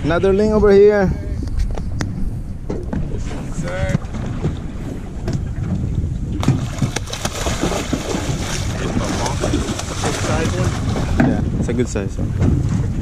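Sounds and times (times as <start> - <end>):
wind buffeting microphone: 0.0 - 13.0
water sloshing around boat: 1.6 - 13.0.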